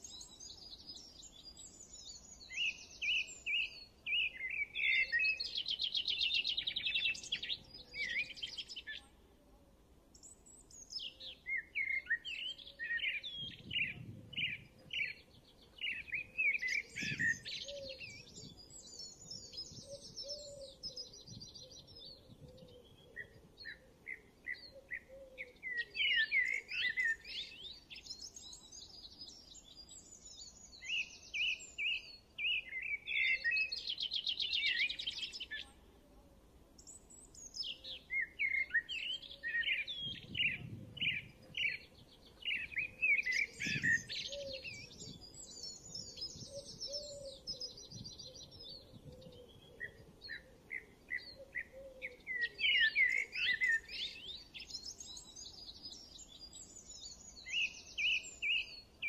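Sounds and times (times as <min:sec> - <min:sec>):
birds chirping and singing: 0:00.0 - 0:09.1, 0:10.2 - 0:35.7, 0:36.8 - 0:59.0.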